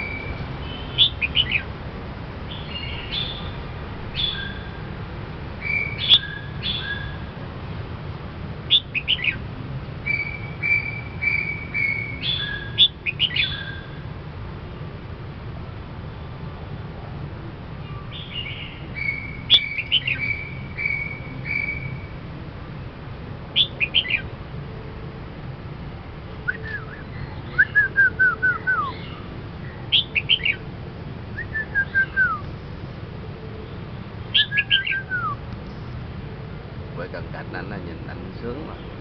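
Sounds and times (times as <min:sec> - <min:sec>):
bird singing: 0:00.0 - 0:01.7, 0:02.5 - 0:04.7, 0:05.6 - 0:07.2, 0:08.7 - 0:09.4, 0:10.0 - 0:13.9, 0:17.8 - 0:22.1, 0:23.6 - 0:24.3, 0:26.4 - 0:30.6, 0:31.4 - 0:32.5, 0:33.6 - 0:35.4.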